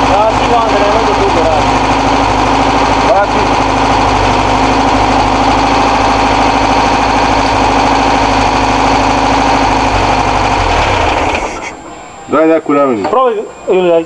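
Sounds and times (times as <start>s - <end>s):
van engine idling: 0.0s - 14.0s.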